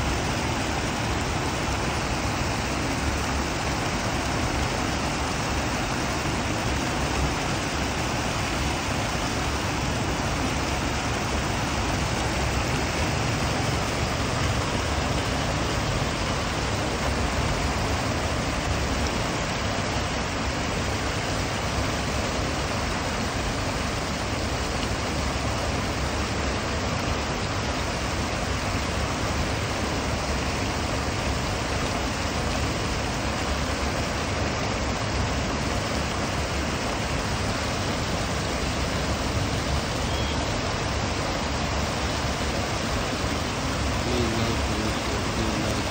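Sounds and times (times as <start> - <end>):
water pouring over weir: 0.0 - 45.9.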